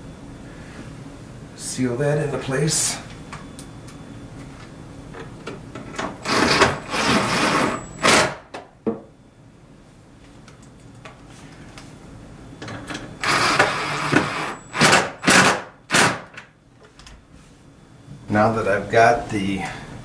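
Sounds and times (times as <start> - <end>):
cordless drill whirring: 6.2 - 8.3, 13.2 - 15.4.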